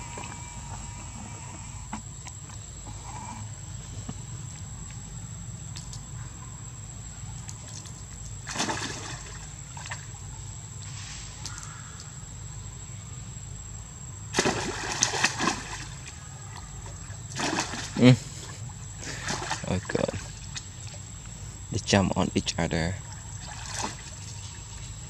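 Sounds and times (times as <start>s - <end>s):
splashing into water: 7.4s - 10.2s, 14.3s - 21.0s, 23.0s - 24.7s.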